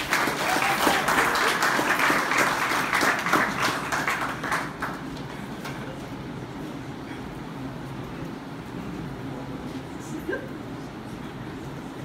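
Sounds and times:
people applauding: 0.0 - 5.6.

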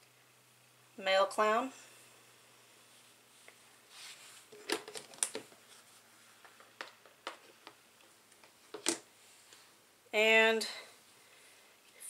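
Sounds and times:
soft rustle: 1.8 - 4.6, 5.5 - 6.6.

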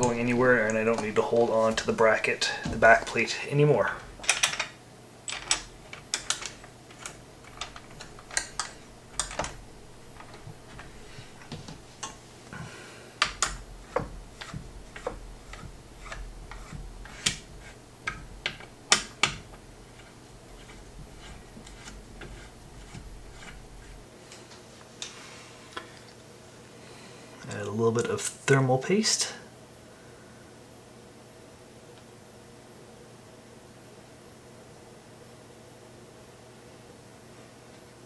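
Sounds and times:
screwdriver clicking on small screws: 5.3 - 9.6.

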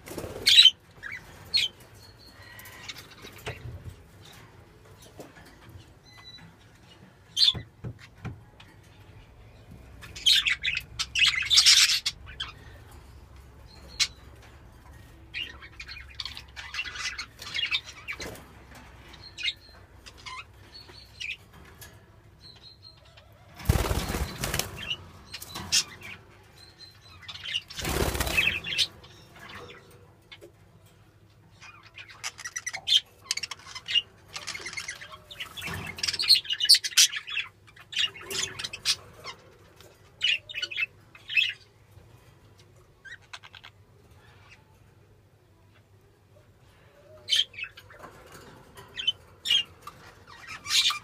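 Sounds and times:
budgerigars fluttering wings: 23.6 - 25.6, 27.7 - 28.9.

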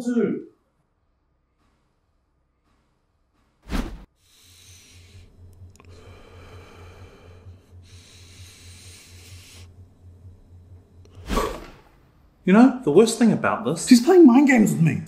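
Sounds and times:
man breathing heavily: 4.2 - 11.7
low pulsing throb: 4.2 - 12.5.

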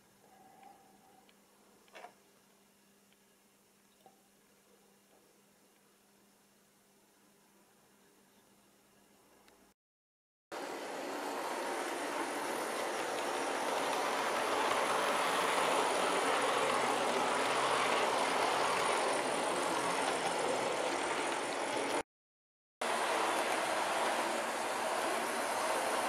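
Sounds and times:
model train running on track: 10.6 - 22.0, 22.8 - 26.0.

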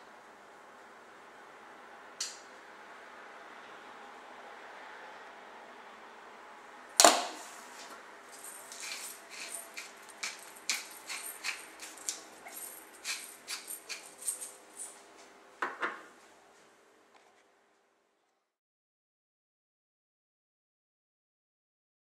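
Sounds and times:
pepper mill grinding clicks: 8.4 - 14.9.

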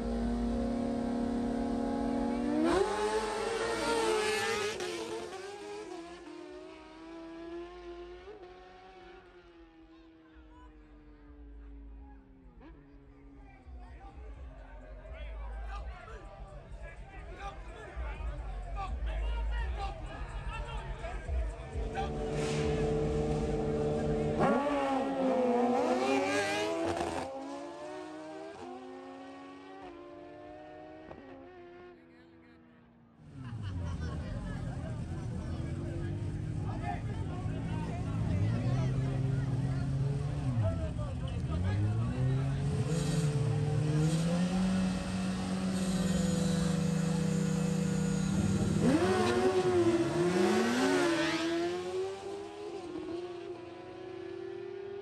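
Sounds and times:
motorbike engines accelerating: 0.0 - 55.0
motorcycle engines upshifting: 42.6 - 53.1.

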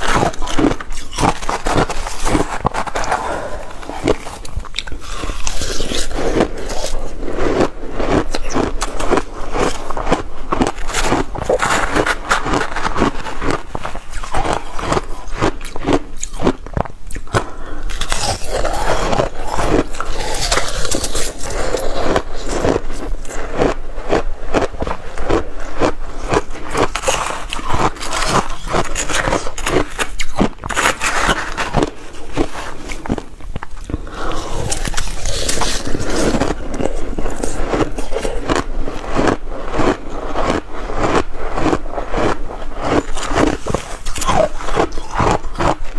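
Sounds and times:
crunching ice chewing: 0.0 - 45.9
metal spoon scraping ice: 17.8 - 23.0, 26.3 - 33.1, 34.3 - 38.6.

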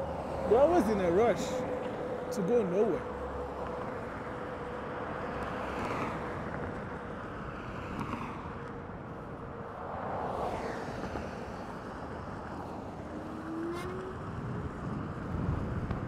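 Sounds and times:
wind rushing over microphone: 6.0 - 16.0.

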